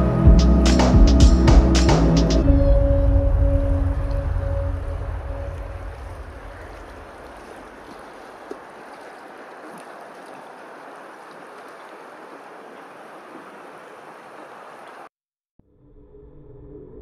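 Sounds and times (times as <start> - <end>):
water rippling and lapping: 3.4 - 15.1.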